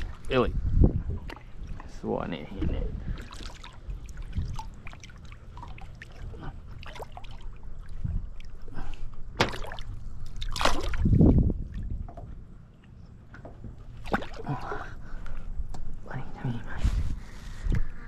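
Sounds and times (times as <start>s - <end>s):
fish splashing at the surface: 9.4s - 11.1s.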